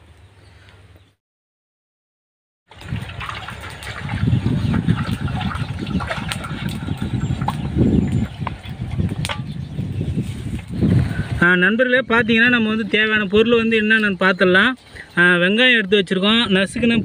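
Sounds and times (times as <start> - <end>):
wind rumbling on microphone: 2.7 - 15.1, 16.0 - 17.0.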